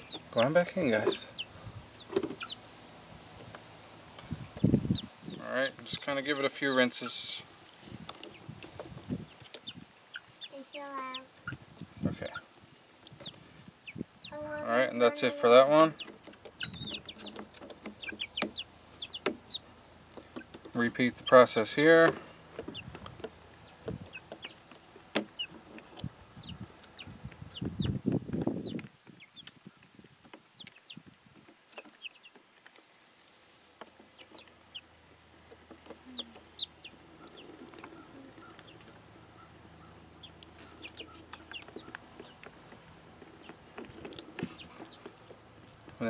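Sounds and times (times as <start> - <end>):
hens clucking: 12.2 - 20.6, 33.8 - 45.5.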